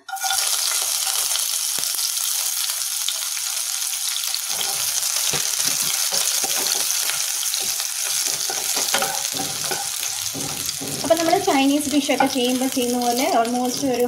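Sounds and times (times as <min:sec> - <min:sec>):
garlic sizzling in oil: 0:00.0 - 0:14.0
spatula scraping a pan: 0:04.5 - 0:14.0.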